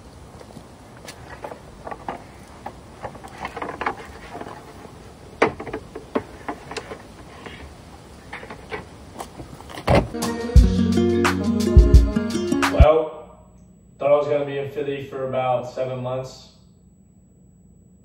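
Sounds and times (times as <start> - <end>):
footsteps: 0.0 - 10.2
thump: 9.8 - 10.2
wooden chair knocking: 9.8 - 10.2
music: 10.1 - 12.9.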